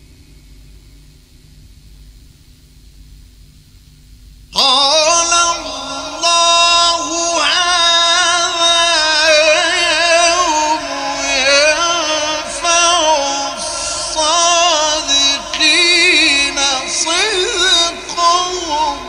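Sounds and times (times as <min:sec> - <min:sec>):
man chanting recitation: 0:04.6 - 0:19.0.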